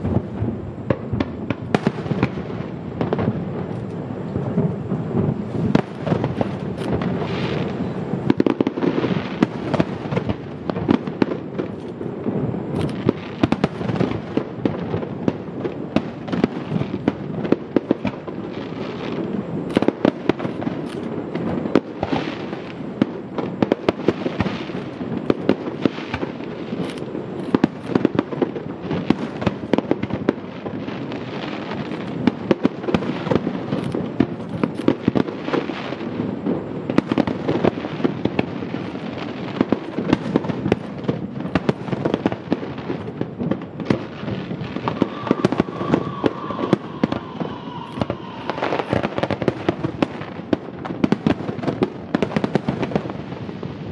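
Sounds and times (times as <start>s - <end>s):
fireworks bangs and crackling: 0.0s - 53.9s
faint whistling tone: 44.9s - 49.0s.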